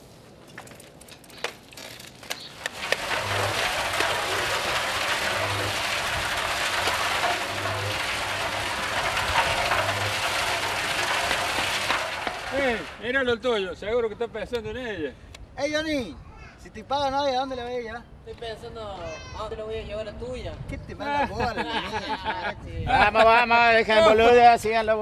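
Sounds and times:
construction rattling and scraping: 0.5s - 13.7s.

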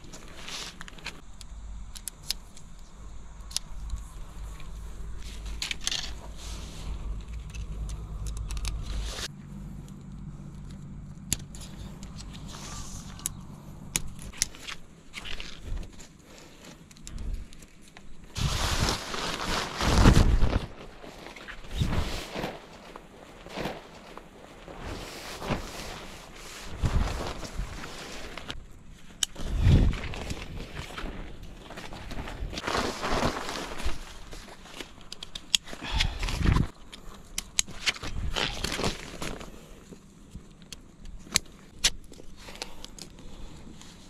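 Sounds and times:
tent poles clicking and rattling: 0.0s - 44.0s
nylon sheet rustling: 18.1s - 28.6s, 29.4s - 35.1s.

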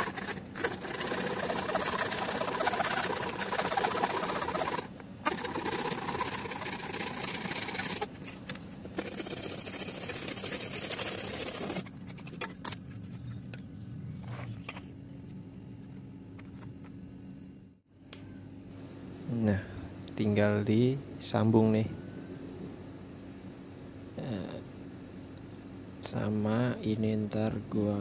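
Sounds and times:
hacksaw sawing through plastic: 0.0s - 8.1s, 9.0s - 12.5s.

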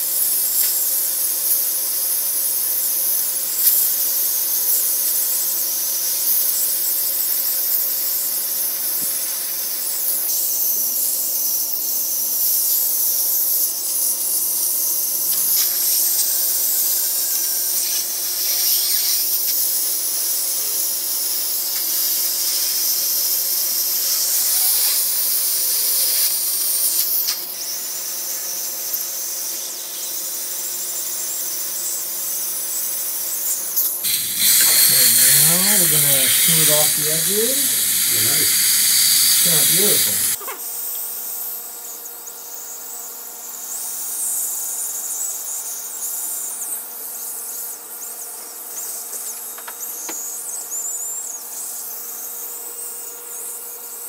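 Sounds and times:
dental handpiece running: 34.0s - 40.4s
high hiss of air spray: 34.0s - 40.4s.

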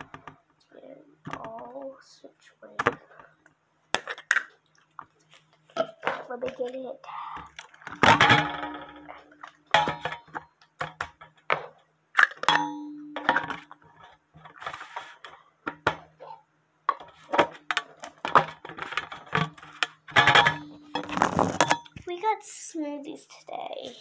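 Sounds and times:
dishes and utensils clattering: 7.6s - 22.0s.

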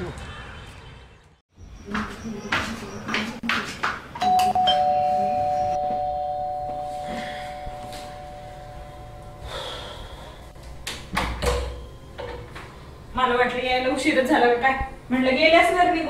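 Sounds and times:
doorbell ding-dong chime: 4.2s - 9.9s.

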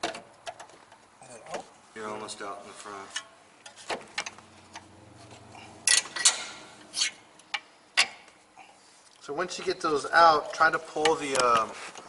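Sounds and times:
tools clinking on metal bolts: 5.8s - 6.6s
sharp metallic clanks: 5.8s - 8.3s.

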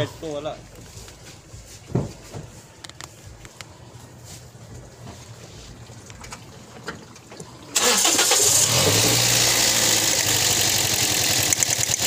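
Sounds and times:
engine cranking and starting: 7.7s - 12.0s
engine idling: 7.8s - 12.0s.

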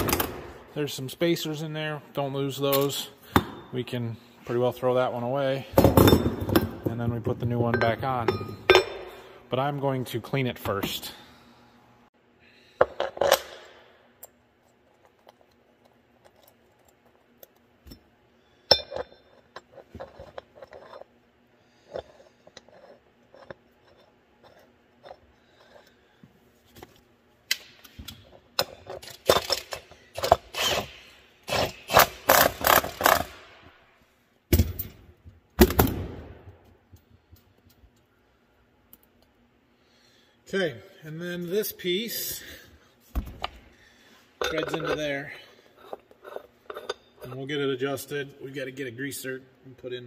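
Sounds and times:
metal parts clinking: 44.4s - 45.2s.

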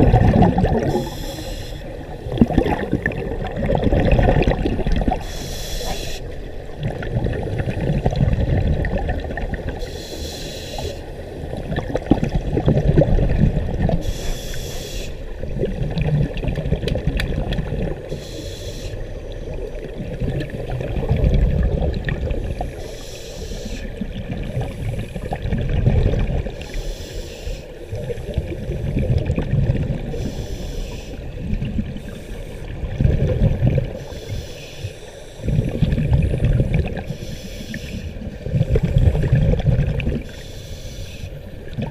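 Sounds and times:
exhaled bubbles rumbling: 0.0s - 9.9s, 11.0s - 14.2s, 15.2s - 18.2s, 19.0s - 23.0s, 23.8s - 26.8s, 27.8s - 30.5s, 31.1s - 34.2s, 35.4s - 40.5s, 41.3s - 41.9s
regulator inhale hiss: 0.8s - 2.3s, 5.2s - 6.4s, 9.8s - 11.5s, 14.0s - 15.4s, 18.0s - 19.6s, 22.5s - 24.0s, 26.6s - 28.5s, 30.1s - 32.7s, 33.8s - 35.9s, 37.0s - 38.3s, 40.2s - 41.5s.

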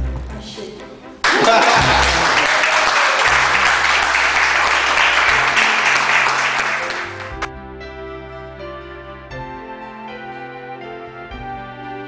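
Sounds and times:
soft background music: 0.0s - 2.2s, 3.3s - 12.0s
group applauding: 1.2s - 7.5s.

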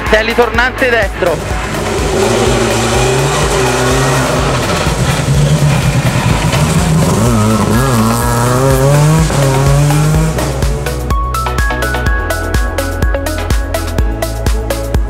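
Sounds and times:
rally car engine at full throttle: 0.0s - 11.2s.

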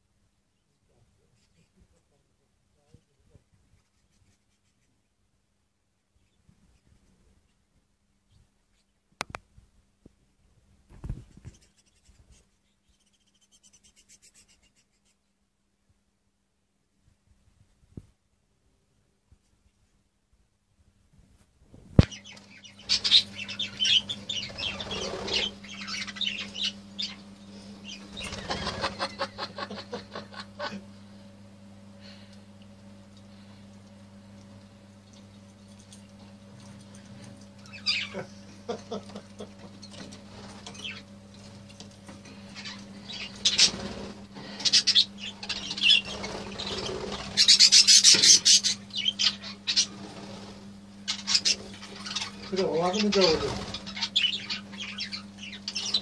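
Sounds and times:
wings flapping: 10.9s - 12.5s, 21.8s - 26.8s, 27.8s - 30.4s, 38.7s - 54.2s
budgerigars chirping: 22.0s - 29.1s, 37.7s - 38.2s, 40.7s - 41.0s, 42.3s - 50.0s, 51.0s - 56.0s.

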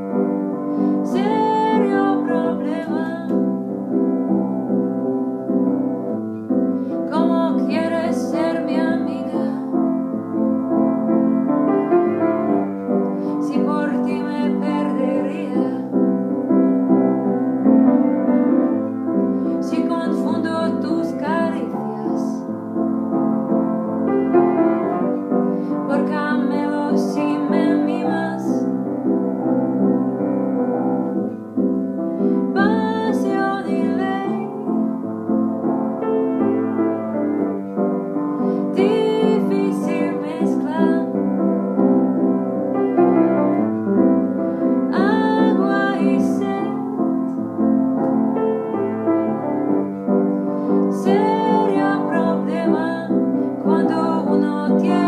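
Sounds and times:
piano chords: 0.0s - 55.0s
woman singing: 0.1s - 3.7s, 7.0s - 10.0s, 12.1s - 16.4s, 19.5s - 22.5s, 25.7s - 28.9s, 32.5s - 35.6s, 38.7s - 41.9s, 44.9s - 47.4s, 50.9s - 55.0s.

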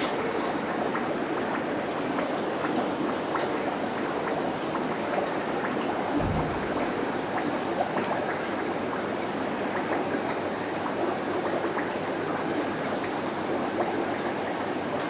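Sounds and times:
bubbling aquarium water: 0.0s - 15.0s
low thump: 6.2s - 7.2s.

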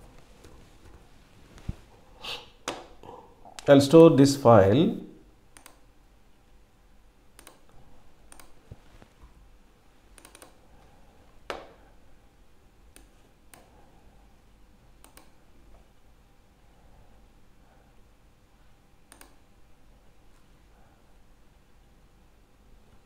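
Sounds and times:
computer mouse clicks: 5.5s - 5.9s, 7.4s - 8.6s, 10.1s - 10.6s, 12.9s - 13.7s, 15.0s - 15.4s, 19.1s - 19.4s.

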